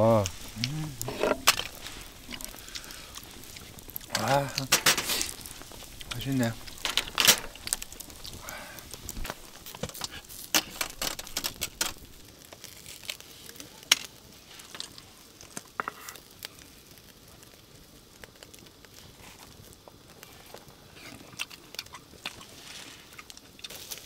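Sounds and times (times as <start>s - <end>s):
campfire crackling: 0.0s - 24.0s.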